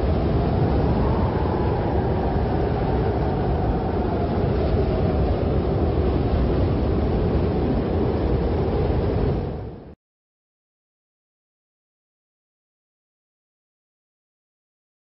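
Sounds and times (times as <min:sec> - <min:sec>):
strong wind howling: 0:00.0 - 0:10.0.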